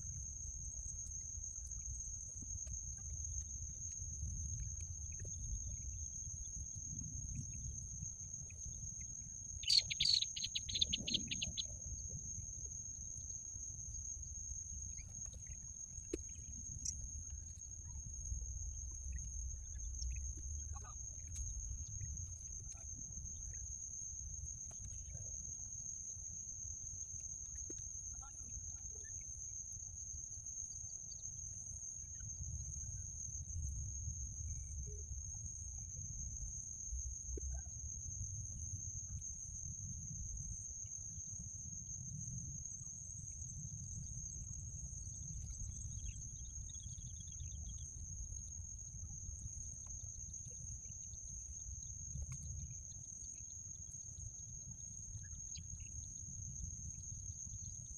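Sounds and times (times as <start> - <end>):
wind rumble on microphone: 0.0 - 26.0
constant high-pitched whine: 0.0 - 57.9
bird calls: 9.6 - 11.7.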